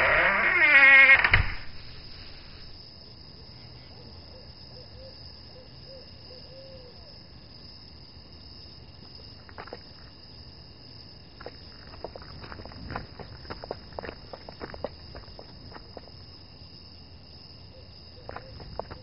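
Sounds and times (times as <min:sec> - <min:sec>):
steady ambient hiss: 0:00.0 - 0:11.8
footsteps: 0:01.4 - 0:02.8, 0:11.4 - 0:16.1, 0:18.3 - 0:19.0.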